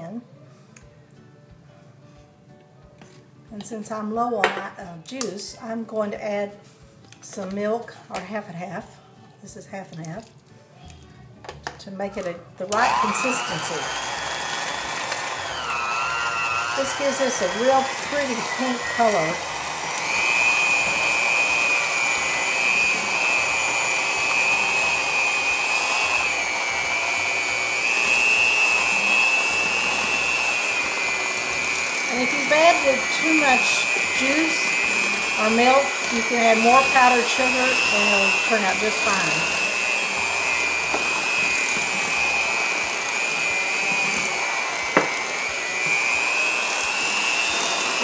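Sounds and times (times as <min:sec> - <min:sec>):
electric hand mixer whine: 0:12.7 - 0:48.0.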